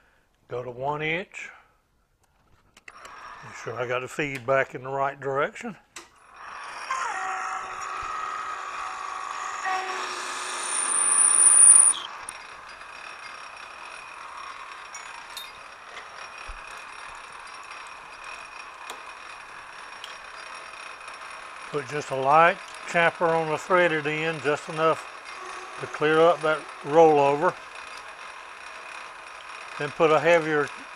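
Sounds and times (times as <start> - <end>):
high squeal of lathe cut: 3.0 - 3.7, 6.2 - 14.9, 19.2 - 30.9
metal lathe cutting: 6.2 - 30.9.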